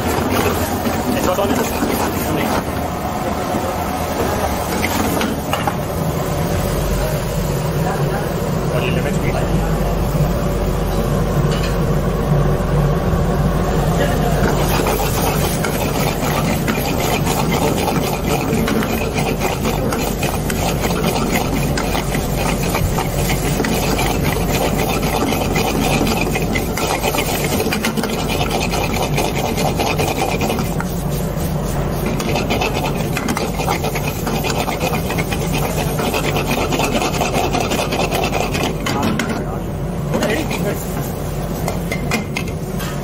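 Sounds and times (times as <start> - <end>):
gas burner flame rushing: 0.0 - 43.0
ladle scraping a wok: 14.4 - 39.3, 40.2 - 42.1.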